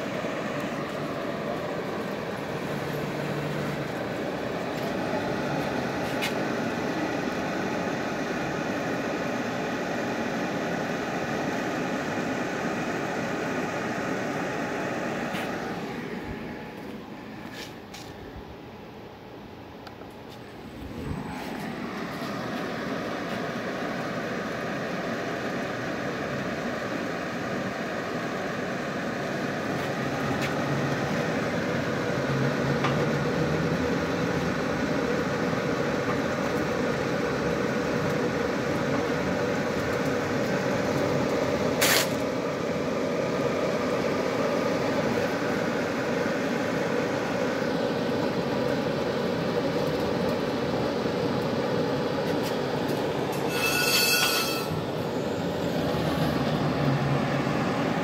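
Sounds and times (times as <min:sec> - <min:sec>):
pipe-cutting machine running: 0:00.0 - 0:17.0, 0:20.5 - 0:58.0
high-pitched tone: 0:53.4 - 0:54.8.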